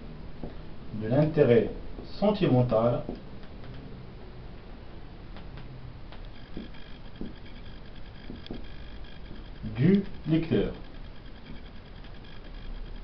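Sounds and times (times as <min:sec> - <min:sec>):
steady low hum: 0:00.0 - 0:13.0
marker scratching on whiteboard: 0:06.5 - 0:07.4.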